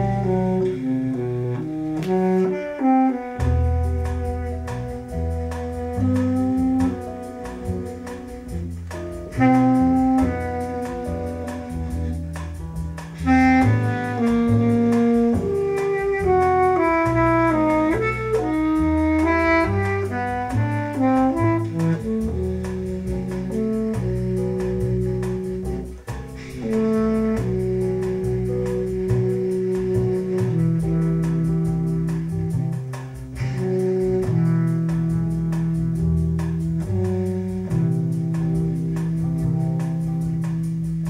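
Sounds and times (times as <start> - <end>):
double bass line: 0.0 - 41.0
saxophone melody: 0.0 - 41.0.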